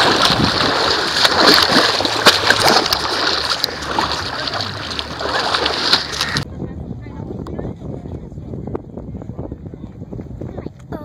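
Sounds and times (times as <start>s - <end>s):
muddy water splashing: 0.0s - 6.5s.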